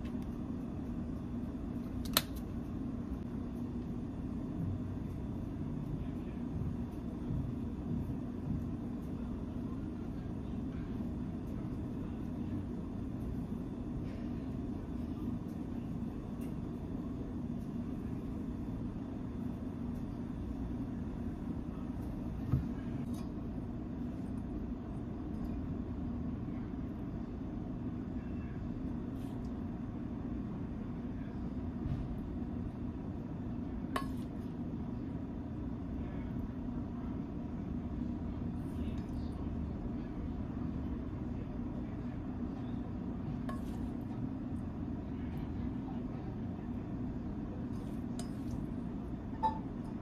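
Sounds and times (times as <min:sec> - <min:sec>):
steady low rumble: 0:00.0 - 0:50.0
spoon clinking metal bowl: 0:47.8 - 0:48.6, 0:49.4 - 0:49.9.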